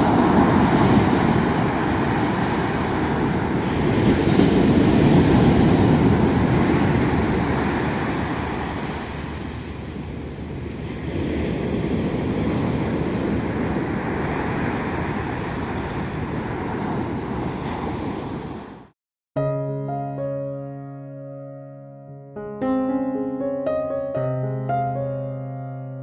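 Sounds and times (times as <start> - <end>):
waves breaking on beach: 0.0 - 18.9.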